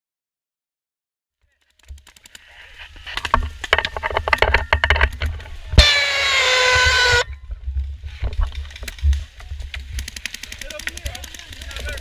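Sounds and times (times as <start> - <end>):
rocket whistle sliding lower: 5.8 - 7.3.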